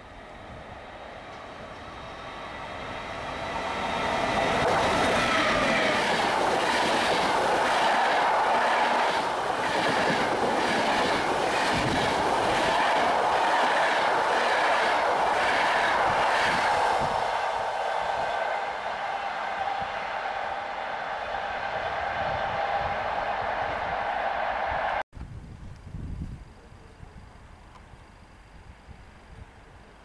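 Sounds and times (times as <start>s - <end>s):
train passing at speed: 0.0s - 25.0s
wheels clacking over rail joints: 1.3s - 17.1s.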